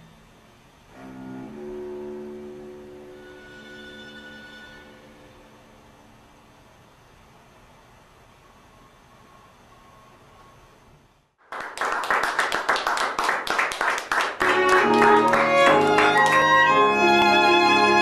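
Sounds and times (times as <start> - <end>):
violin and cello string music: 14.4 - 18.0.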